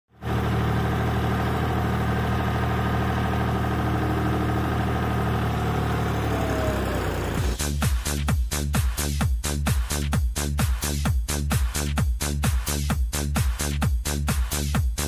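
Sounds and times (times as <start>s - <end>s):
tractor diesel engine running: 0.1s - 7.7s.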